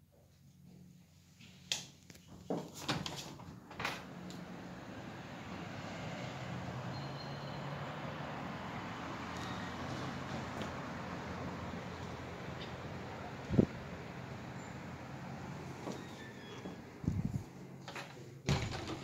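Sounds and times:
city noise hum: 3.1 - 19.0.

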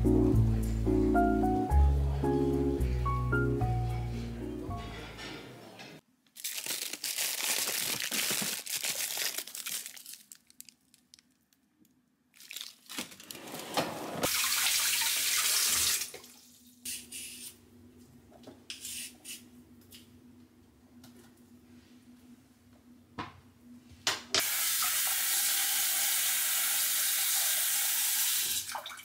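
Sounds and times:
plastic bags rustling: 6.3 - 11.6, 12.3 - 14.3
water running into sink: 14.2 - 16.5, 24.4 - 29.0.

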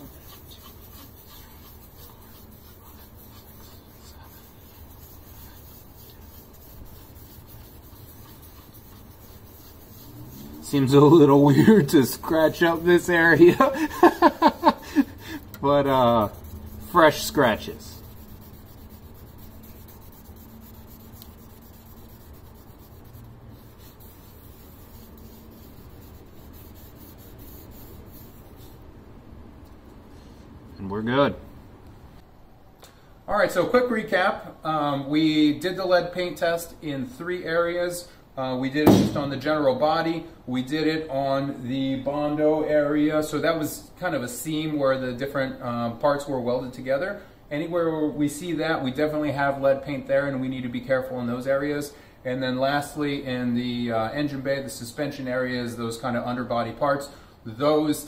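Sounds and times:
swab rubbing on painted steel: 0.0 - 28.9.

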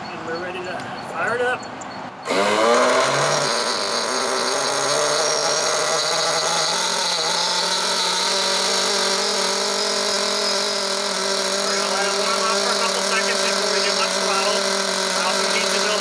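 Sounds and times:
nitro model engine running: 2.2 - 16.0.

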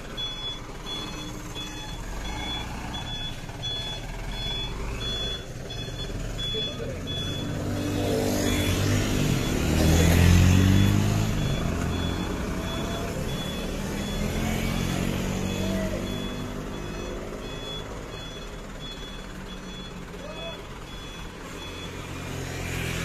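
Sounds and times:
reversing alarm beeps: 0.0 - 23.0
truck engine revving: 0.0 - 23.0.

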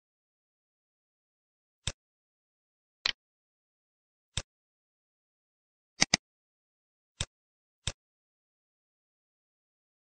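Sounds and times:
computer mouse clicks: 6.0 - 6.2.

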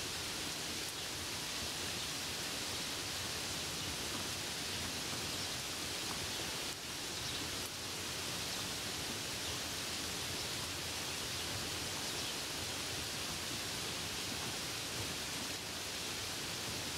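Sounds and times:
rain falling on leaves: 0.0 - 16.9.

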